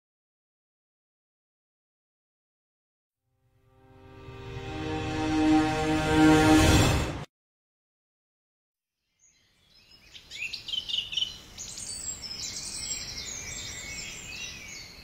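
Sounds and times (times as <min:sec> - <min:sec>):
birds chirping: 0:09.2 - 0:15.0.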